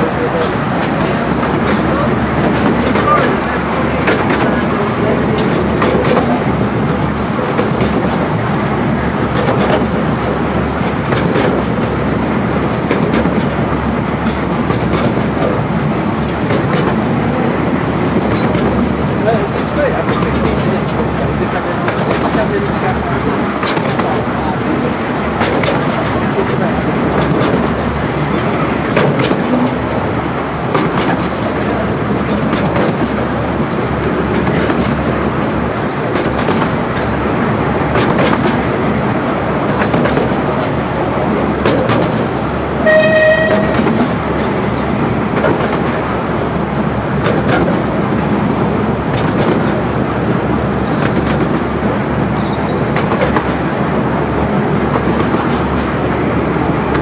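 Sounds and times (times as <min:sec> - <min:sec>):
train wheels rumbling on track: 0:00.0 - 0:57.0
clicks over rail joints: 0:00.1 - 0:57.0
locomotive toot: 0:42.7 - 0:45.0.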